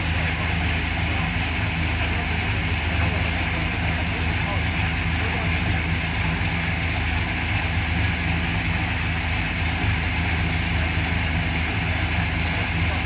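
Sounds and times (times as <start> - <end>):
heavy machinery engine drone: 0.0 - 13.0.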